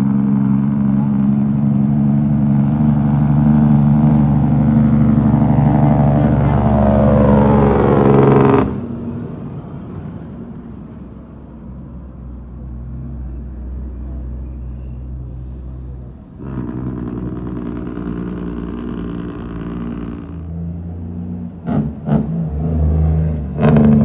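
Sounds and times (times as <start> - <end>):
truck diesel engine revving: 0.0 - 9.2, 15.4 - 24.0.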